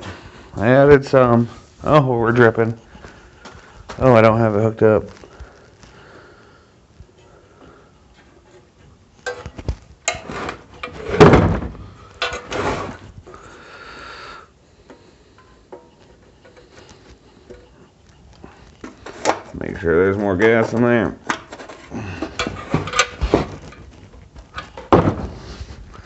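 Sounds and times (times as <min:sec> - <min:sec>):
metal scrape: 0:10.1 - 0:11.2, 0:12.2 - 0:13.1.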